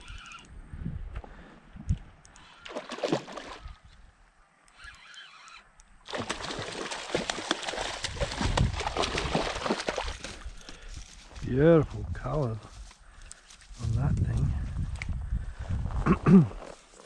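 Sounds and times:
river water splashing: 2.6 - 3.8, 6.0 - 10.6.

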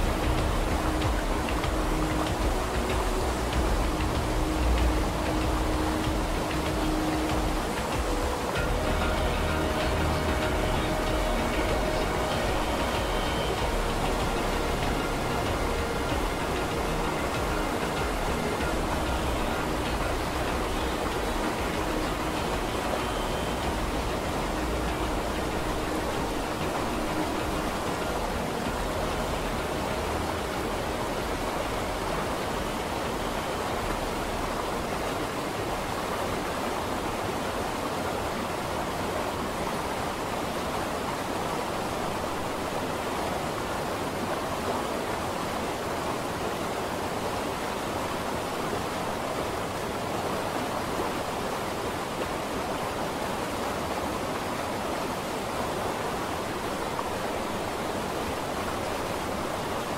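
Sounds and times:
water rushing: 0.0 - 59.9.

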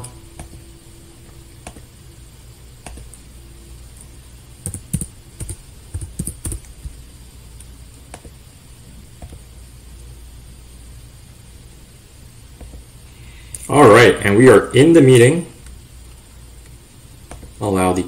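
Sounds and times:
low hum: 0.0 - 17.7
computer keyboard typing: 1.6 - 1.8, 2.8 - 3.2, 4.6 - 7.0.

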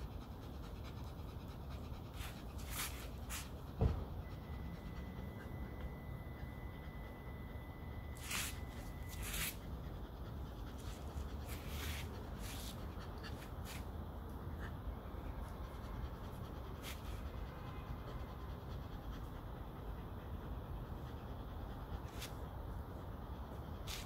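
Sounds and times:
brush strokes through dog fur: 2.0 - 3.7, 8.2 - 9.6, 10.7 - 13.9, 16.8 - 17.3, 22.0 - 22.4, 23.8 - 24.0.

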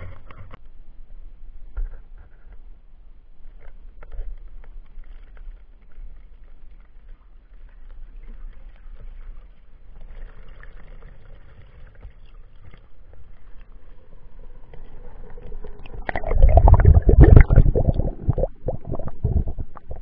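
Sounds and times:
muffled underwater gurgling rumble: 7.6 - 20.0
water rushing: 13.9 - 20.0.

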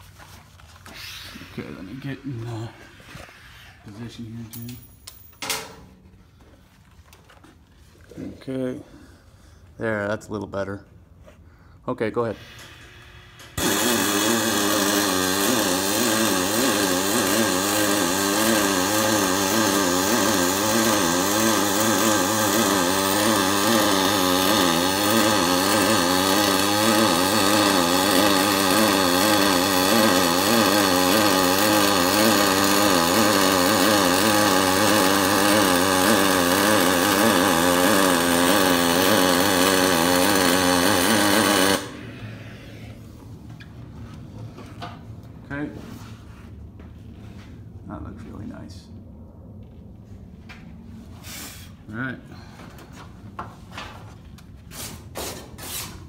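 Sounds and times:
welding arc buzzing: 12.2 - 43.2.

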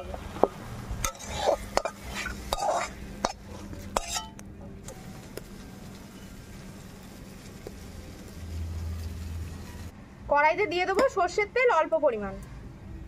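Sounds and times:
metal spatula scraping and clinking: 1.0 - 4.4.

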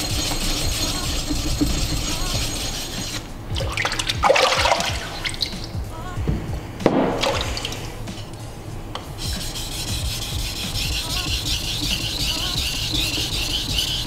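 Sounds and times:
background music: 0.0 - 14.0
water sloshing and splashing: 3.5 - 5.8, 7.1 - 8.0.

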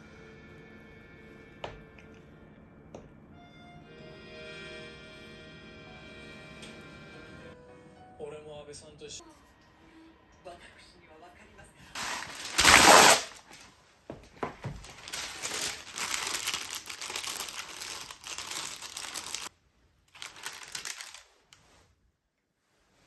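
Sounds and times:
paper ripping: 12.0 - 13.7, 14.8 - 19.5, 20.1 - 21.6
paper crinkling and rustling: 12.0 - 13.8, 14.4 - 19.5, 20.1 - 21.8.

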